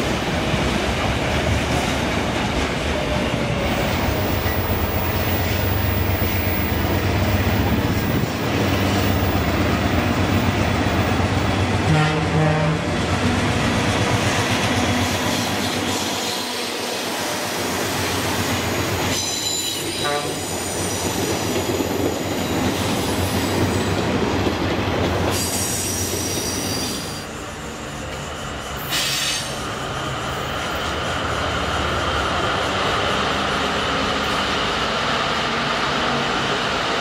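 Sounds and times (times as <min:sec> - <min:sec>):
brief air hiss: 0:28.6 - 0:29.7.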